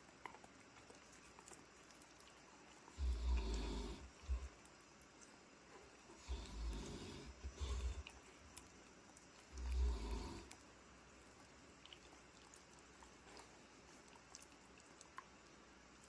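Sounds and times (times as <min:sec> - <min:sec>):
dogs nibbling clicks: 0:00.0 - 0:10.7, 0:11.3 - 0:16.0
dog growling: 0:02.9 - 0:04.6, 0:06.1 - 0:08.3, 0:09.4 - 0:10.6.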